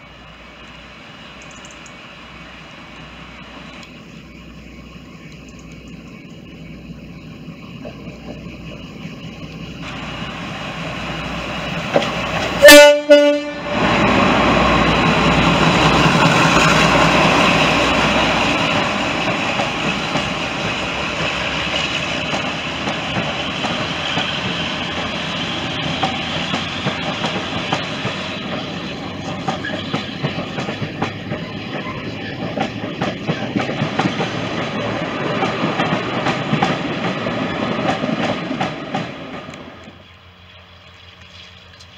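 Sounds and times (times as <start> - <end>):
locomotive engines working hard: 0.0 - 41.9
train coaches rumbling and clacking: 0.0 - 41.9
locomotive horn: 12.5 - 13.9.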